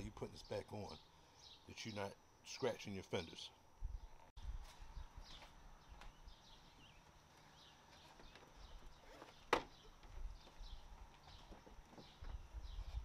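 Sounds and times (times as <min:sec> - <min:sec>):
faint bird chirps: 0:00.0 - 0:13.0
faint footsteps: 0:04.5 - 0:13.0.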